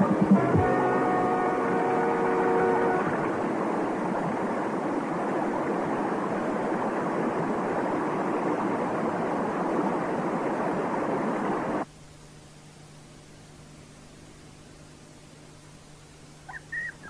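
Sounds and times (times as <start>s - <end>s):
fast-flowing river water: 0.0s - 11.8s.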